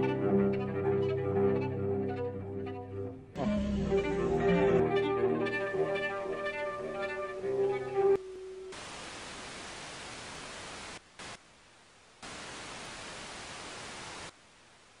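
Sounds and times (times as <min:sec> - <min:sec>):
television static hiss: 0:08.2 - 0:15.0.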